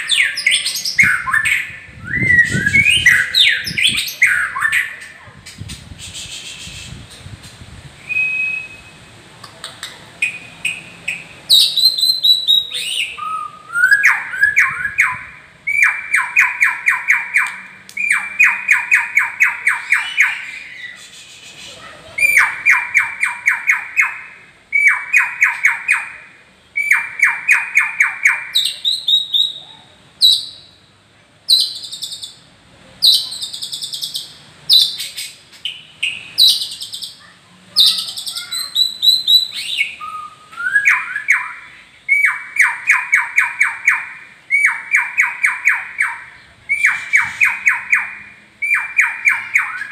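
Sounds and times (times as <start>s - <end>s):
songbird singing loudly: 0.0s - 7.1s, 8.0s - 9.1s, 10.2s - 30.9s, 31.5s - 32.4s, 33.0s - 49.9s.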